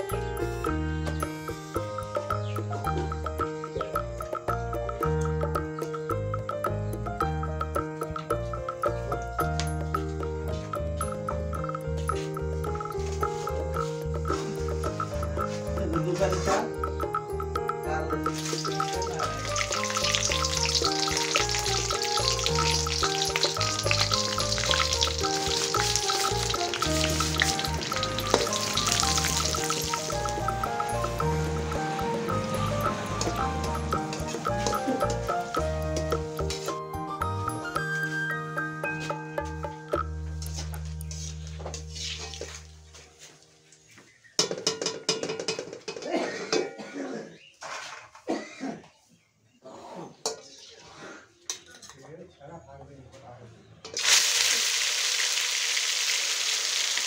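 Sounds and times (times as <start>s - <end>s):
hot oil sizzling: 0.0s - 37.7s, 40.0s - 42.8s, 53.9s - 57.0s
background music with pulsing bass: 0.0s - 42.6s
chillies crackling in hot oil: 18.2s - 35.8s, 53.9s - 57.0s.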